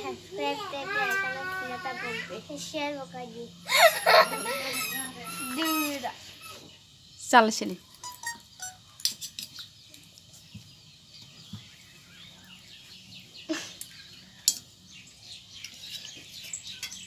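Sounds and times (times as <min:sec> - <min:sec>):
small birds chirping: 0:00.0 - 0:17.0
forks clinking on metal plates: 0:16.0 - 0:17.0.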